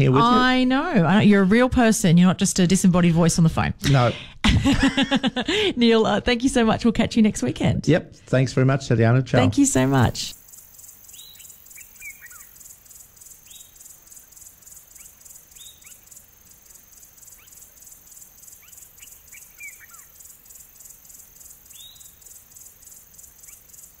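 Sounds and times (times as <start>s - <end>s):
insect chirring: 9.5s - 24.0s
bird whistled calls: 11.1s - 12.5s, 18.6s - 20.1s.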